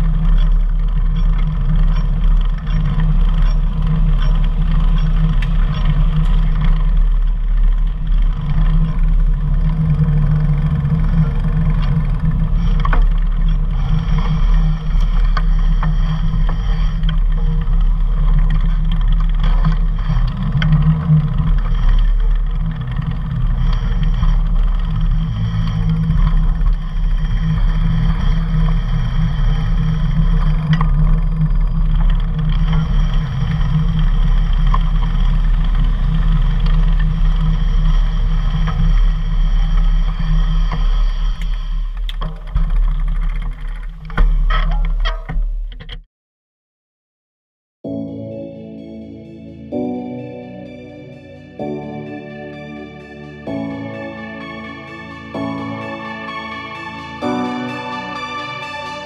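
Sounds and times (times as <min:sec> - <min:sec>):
traffic noise: 0:00.0 - 0:44.2
wind rumble on microphone: 0:00.0 - 0:46.0.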